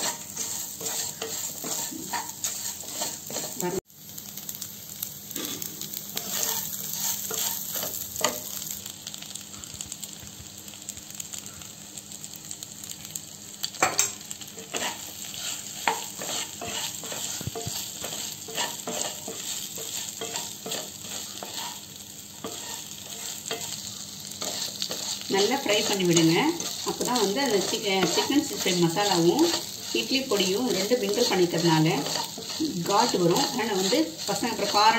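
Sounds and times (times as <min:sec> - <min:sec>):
wooden spatula scraping a pan: 0:00.0 - 0:03.8, 0:06.2 - 0:08.5, 0:14.6 - 0:34.9
food sizzling in oil: 0:00.0 - 0:34.9.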